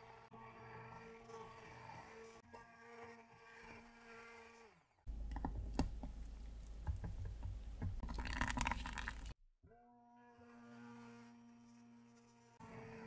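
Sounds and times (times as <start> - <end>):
immersion blender churning liquid: 8.0 - 9.3.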